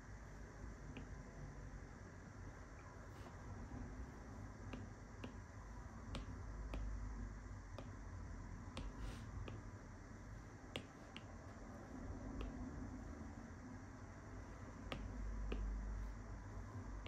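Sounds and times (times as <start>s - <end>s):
faint low hum: 0.0s - 17.0s
stylus tapping on glass screen: 10.8s - 11.3s.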